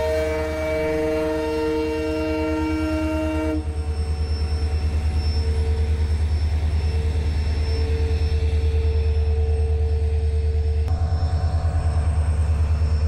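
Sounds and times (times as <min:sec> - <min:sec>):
locomotive horn chord: 0:00.0 - 0:03.7.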